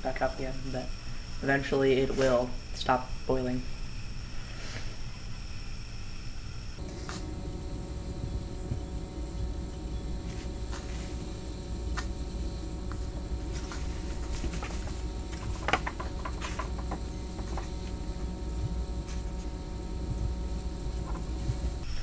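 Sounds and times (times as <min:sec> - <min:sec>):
steady low hum: 0:00.0 - 0:22.0
water boiling with clicks and crackles: 0:11.1 - 0:19.0.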